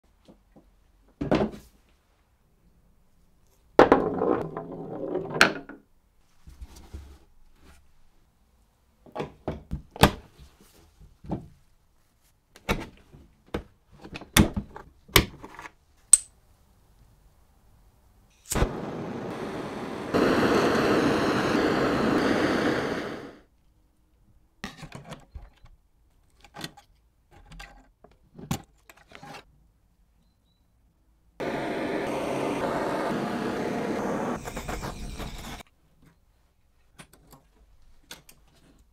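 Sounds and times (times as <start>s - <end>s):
butane torch hissing: 18.5s - 23.5s, 31.4s - 35.6s.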